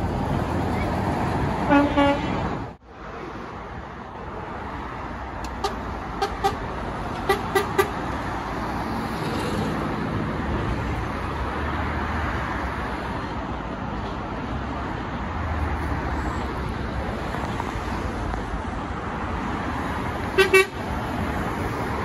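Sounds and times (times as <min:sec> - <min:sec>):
passing truck engines and traffic: 0:00.0 - 0:22.0
truck horn blast: 0:01.7 - 0:02.4, 0:05.6 - 0:06.6, 0:07.2 - 0:08.0, 0:20.3 - 0:20.8.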